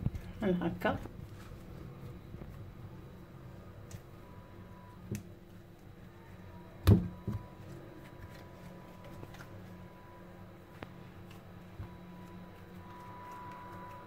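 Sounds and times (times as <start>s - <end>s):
low room hum: 0.0s - 14.0s
handling knocks and thump: 6.8s - 7.5s.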